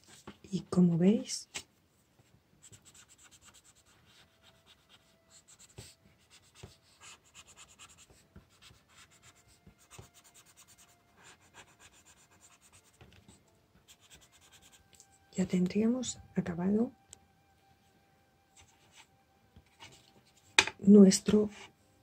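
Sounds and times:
pencil scratching on paper: 0:02.6 - 0:14.8, 0:18.6 - 0:19.1.

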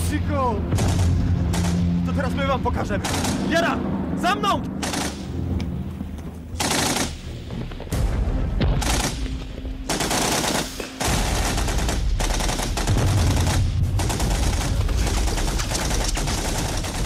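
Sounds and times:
gunshots: 0:00.7 - 0:02.0, 0:02.9 - 0:03.8, 0:04.8 - 0:05.5, 0:06.6 - 0:07.4, 0:08.6 - 0:17.0
rapid machine-gun fire: 0:00.8 - 0:01.9, 0:03.0 - 0:03.6, 0:04.8 - 0:05.3, 0:06.6 - 0:07.2, 0:08.7 - 0:09.2, 0:09.9 - 0:17.0.

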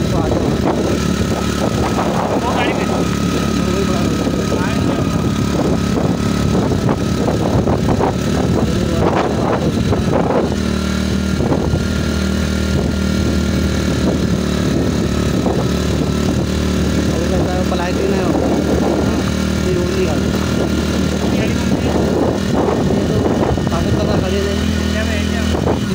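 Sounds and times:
motorcycle engine running: 0:00.0 - 0:25.9
road and wind noise: 0:00.0 - 0:25.9.

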